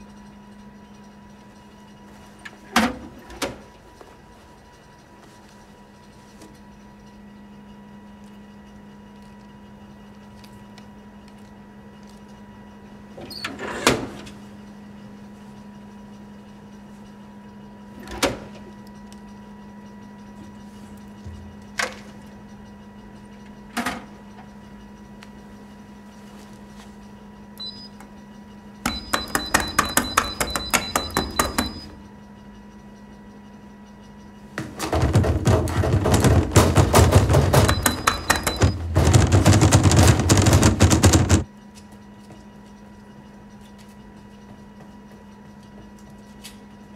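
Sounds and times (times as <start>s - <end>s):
vending machine humming: 0.0s - 46.9s
rapid barrage of knocks: 34.6s - 41.4s
single thumps: 34.6s - 41.4s
fast clicks: 35.5s - 41.4s.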